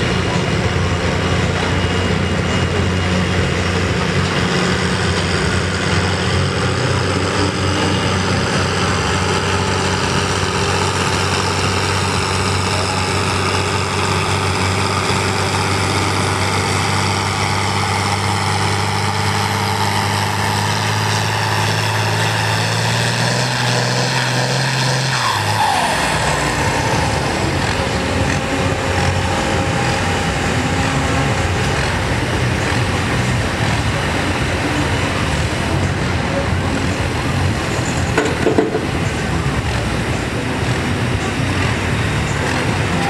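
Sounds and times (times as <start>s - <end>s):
tractor engine under load: 0.0s - 43.0s.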